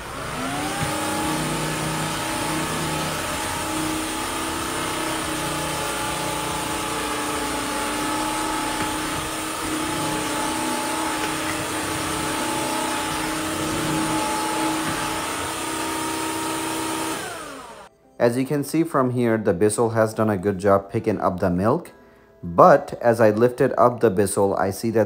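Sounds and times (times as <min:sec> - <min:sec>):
wet-dry vacuum motor whining: 0:00.0 - 0:17.9.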